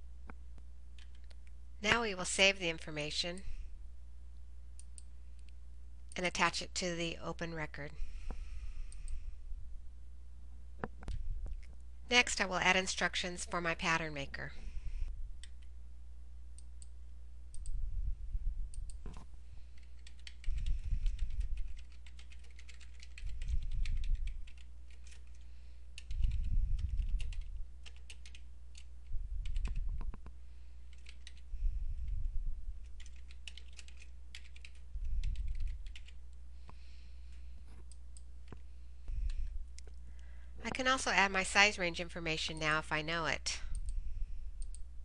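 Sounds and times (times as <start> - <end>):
steady low hum: 0.0 - 45.0
low rumble: 17.6 - 19.3, 31.6 - 33.0.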